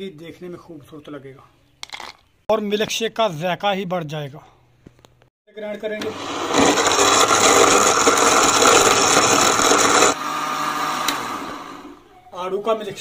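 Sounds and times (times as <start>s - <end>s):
blender motor running: 6.0s - 12.0s.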